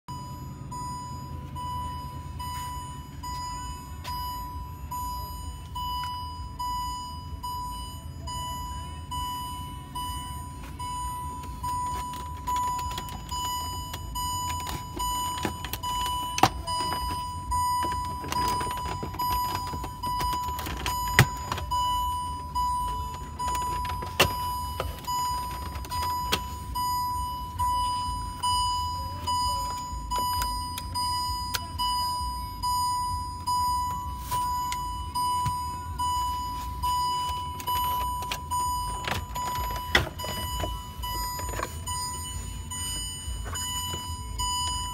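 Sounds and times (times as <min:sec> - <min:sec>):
car warning chime: 0:00.0 - 0:44.9.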